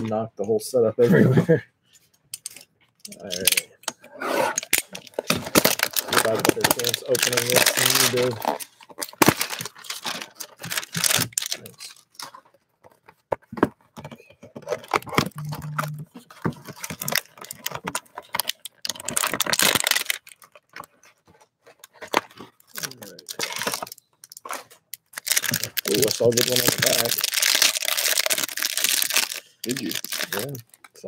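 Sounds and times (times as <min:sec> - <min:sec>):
foil pack tearing and crinkling: 0:04.6 - 0:12.3, 0:16.5 - 0:20.9, 0:22.1 - 0:30.8.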